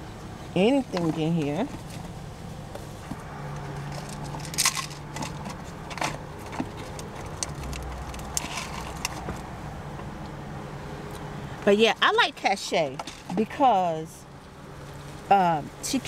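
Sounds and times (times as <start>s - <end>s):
rummaging through a bag: 2.8s - 9.4s.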